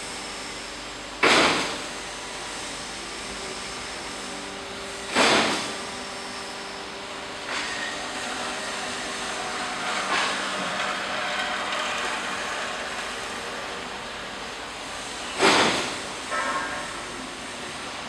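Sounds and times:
machinery noise: 5.1s - 18.0s.

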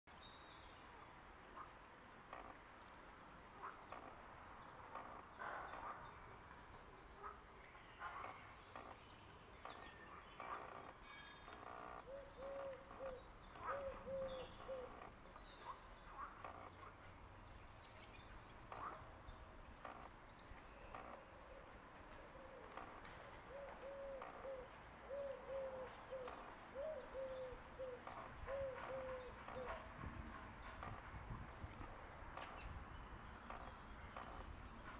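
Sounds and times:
bird cooing: 12.0s - 15.0s, 23.5s - 29.8s.

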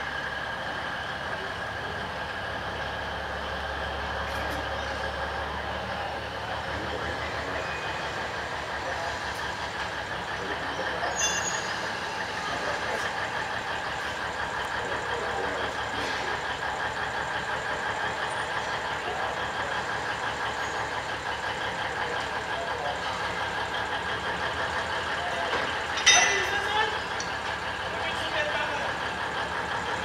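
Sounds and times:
diesel locomotive idling: 0.0s - 30.0s
metallic clink: 26.0s - 26.6s.

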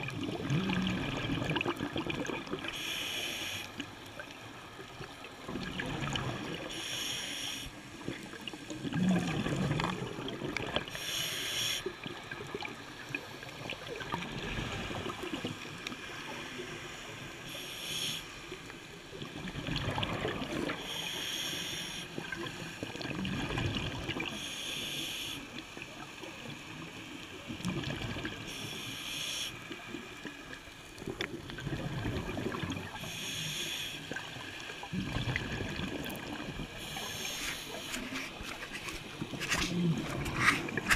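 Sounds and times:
muffled underwater water noise: 0.0s - 40.9s
short hiss: 2.8s - 3.7s, 6.7s - 7.7s, 11.0s - 11.9s, 17.5s - 18.4s, 20.8s - 22.1s, 36.9s - 40.8s.

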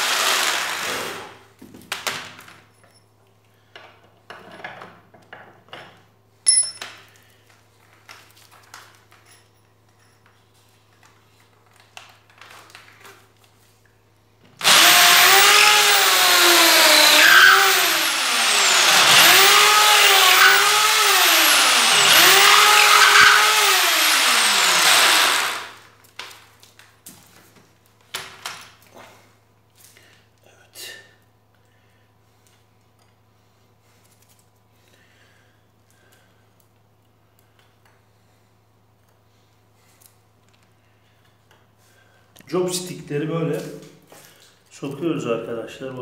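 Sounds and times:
electric drill boring into wood: 0.0s - 1.3s, 14.6s - 25.9s.

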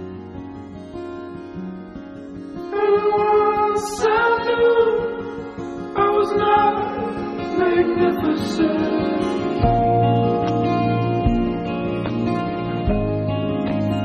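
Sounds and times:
soft accompaniment: 9.4s - 14.0s.

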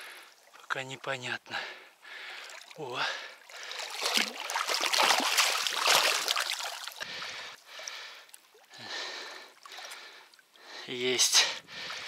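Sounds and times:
fish thrashing and splashing: 3.4s - 7.4s.

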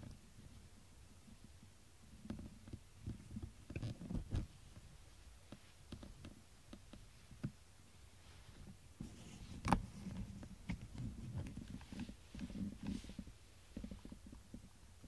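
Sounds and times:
fur and bedding rustling: 11.0s - 14.2s.

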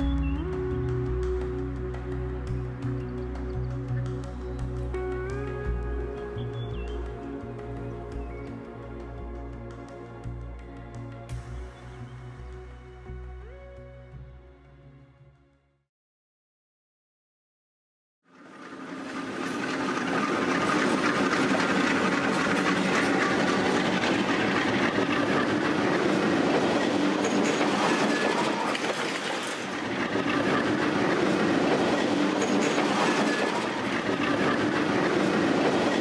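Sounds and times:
freight train passing: 18.3s - 36.0s.

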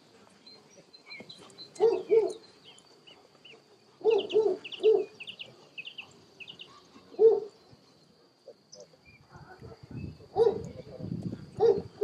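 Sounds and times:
birds chirping: 0.0s - 12.0s
dog barking: 1.8s - 2.4s, 4.0s - 5.1s, 7.2s - 7.5s, 10.4s - 10.7s, 11.6s - 12.0s.

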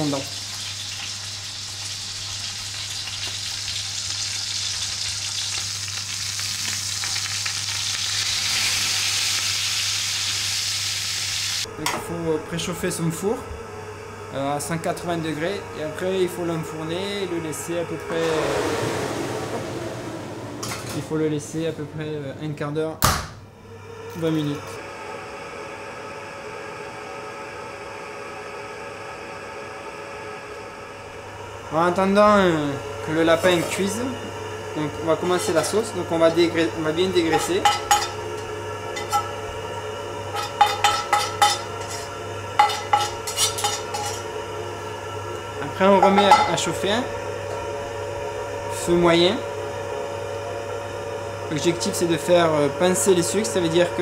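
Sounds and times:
meat sizzling in a pan: 0.0s - 11.7s
oven fan whirring: 0.0s - 54.0s.

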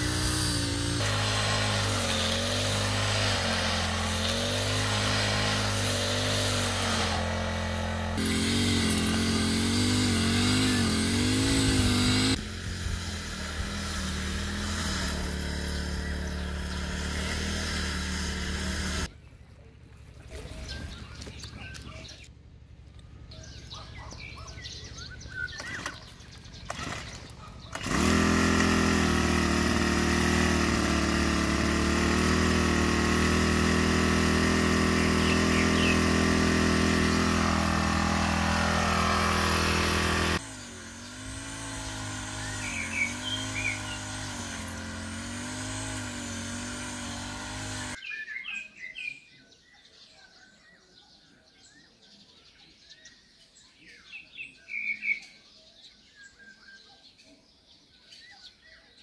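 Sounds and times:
brush cutter engine running: 0.0s - 19.1s, 25.1s - 48.0s
birds chirping: 13.9s - 30.6s, 34.3s - 59.0s.

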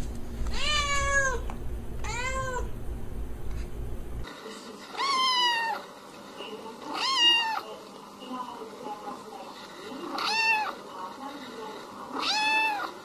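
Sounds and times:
low hum: 0.0s - 4.3s
cat meowing: 0.5s - 2.7s, 5.0s - 5.8s, 6.9s - 7.6s, 10.1s - 10.8s, 12.1s - 13.0s.

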